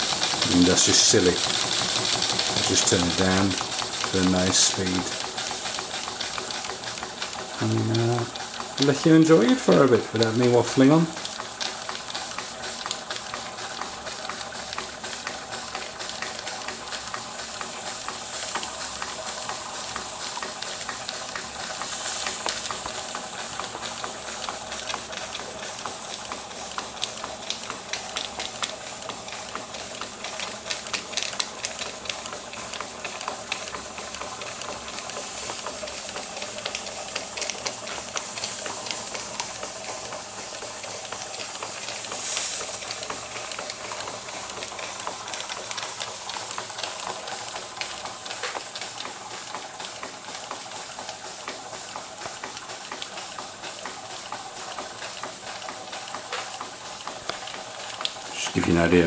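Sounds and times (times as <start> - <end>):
steam engine ticking beats: 0.0 - 59.0
steam hissing: 16.6 - 24.8, 33.3 - 52.4.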